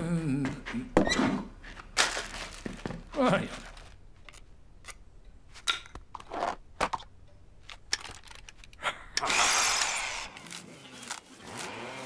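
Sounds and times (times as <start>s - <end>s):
cordless drill whirring: 9.2s - 12.0s.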